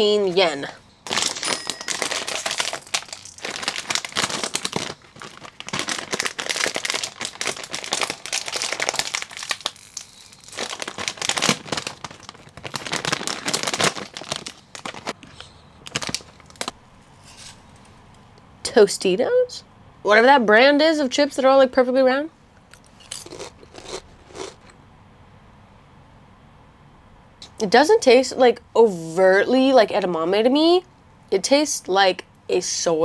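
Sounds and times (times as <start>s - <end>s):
chip bag crinkling: 1.0s - 16.8s, 23.1s - 24.7s.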